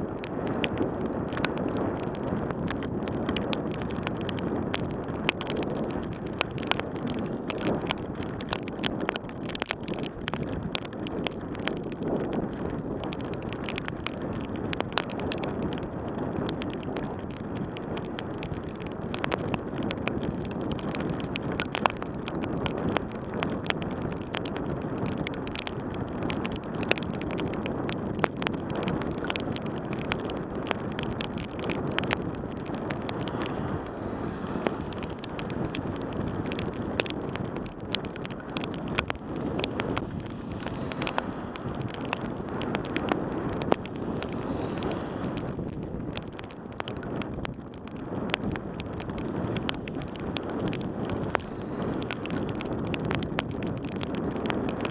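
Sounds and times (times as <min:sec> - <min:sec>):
wind on microphone: 0:00.0 - 0:54.9
tyres hissing on wet road: 0:33.2 - 0:35.3, 0:39.7 - 0:41.9, 0:43.8 - 0:45.5.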